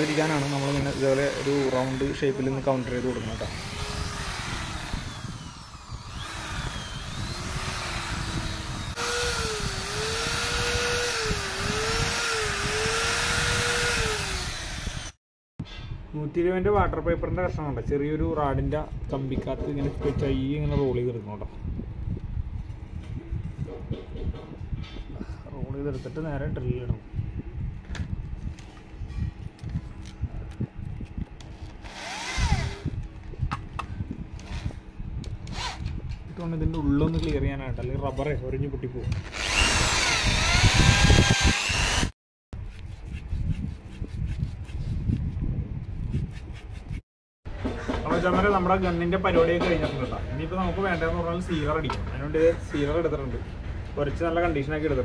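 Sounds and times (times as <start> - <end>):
electric drill countersinking wood: 0.0 - 15.2, 31.7 - 33.0, 35.4 - 36.0, 39.1 - 42.2.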